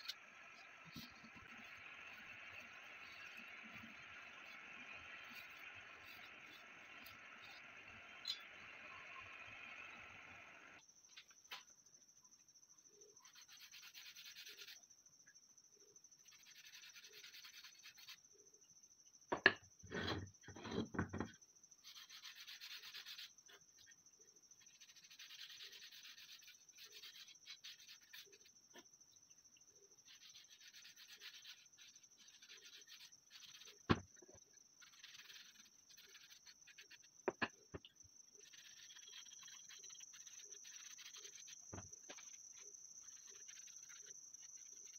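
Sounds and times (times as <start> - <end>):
wood knocking on table: 19.3 - 19.6, 37.3 - 37.9.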